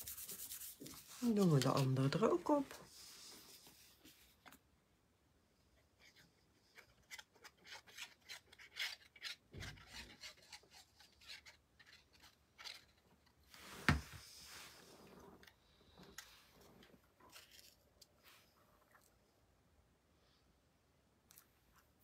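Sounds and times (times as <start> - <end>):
glue nozzle scraping paper: 6.0 - 13.0.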